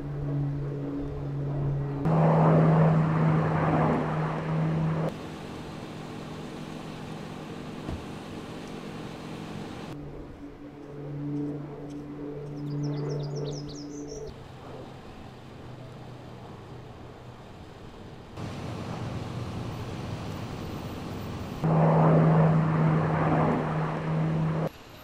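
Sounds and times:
low hum: 0.0s - 24.7s
airplane engines droning overhead: 0.0s - 25.0s
birds chirping: 4.4s - 10.0s, 12.4s - 16.1s, 18.2s - 24.7s.

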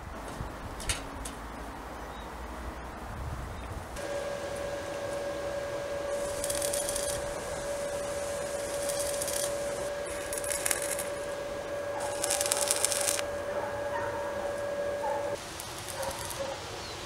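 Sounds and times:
steady whine: 3.9s - 16.8s
welding arc crackle: 4.0s - 16.8s.

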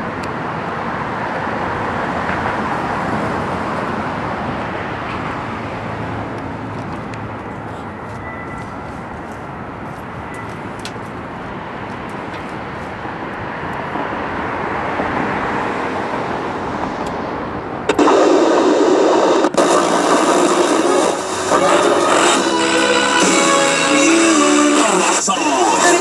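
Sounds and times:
loud playback from boombox speakers: 17.9s - 26.0s.

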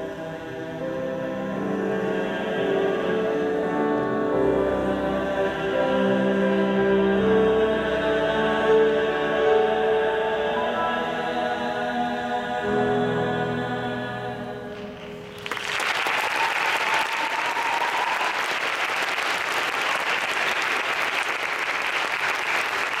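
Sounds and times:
male choir singing a chord: 0.0s - 15.2s
audience applause: 15.2s - 23.0s.

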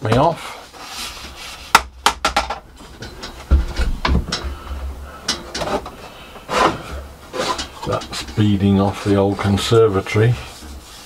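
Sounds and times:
wooden pieces knocking together: 1.7s - 6.8s.

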